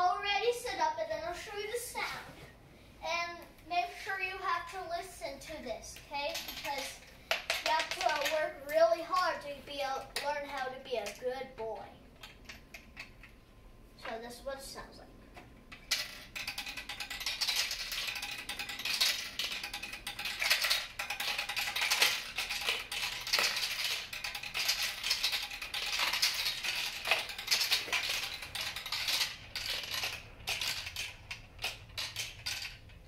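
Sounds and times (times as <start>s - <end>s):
marbles rattling down plastic run: 6.3s - 9.4s, 15.7s - 33.0s.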